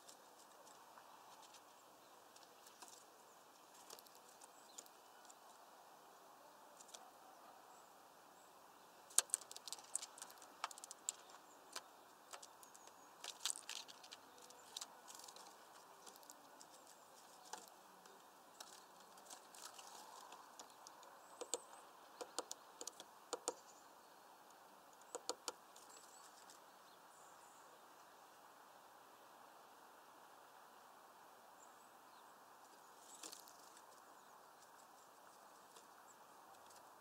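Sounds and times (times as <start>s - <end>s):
woodpecker tapping: 9.1s - 23.8s, 24.9s - 26.5s.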